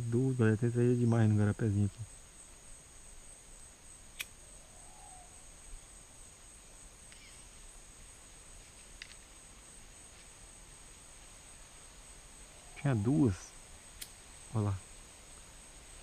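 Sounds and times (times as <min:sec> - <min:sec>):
high-pitched insect chorus: 0:00.0 - 0:16.0
faint clicks: 0:14.0 - 0:14.2.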